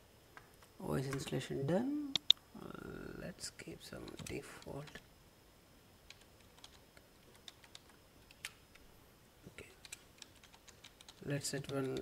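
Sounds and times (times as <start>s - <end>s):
computer keyboard typing: 4.0s - 5.0s, 6.1s - 8.8s, 9.6s - 12.0s.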